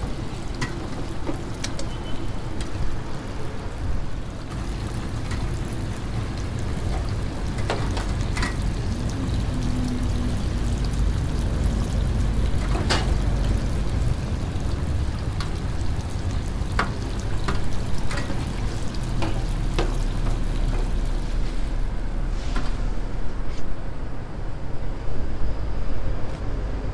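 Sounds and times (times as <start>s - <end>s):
doughnuts sizzling in deep fryer: 0.0s - 23.3s
skimmer clinking against fryer: 6.7s - 9.4s, 14.7s - 21.0s.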